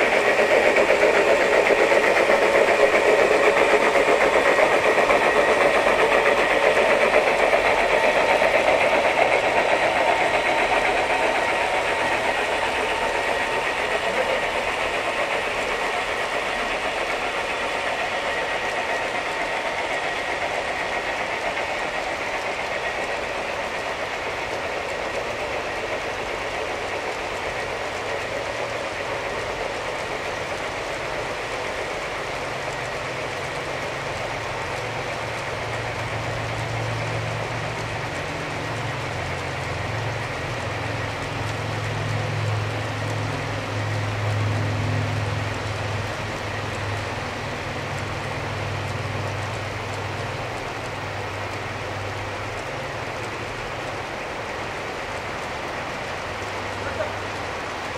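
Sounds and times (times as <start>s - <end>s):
model train wheels clattering: 0.0s - 57.9s.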